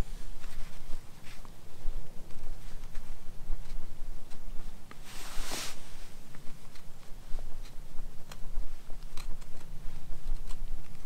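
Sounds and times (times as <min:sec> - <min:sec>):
knife carving wood: 0:02.3 - 0:04.5, 0:09.0 - 0:11.0.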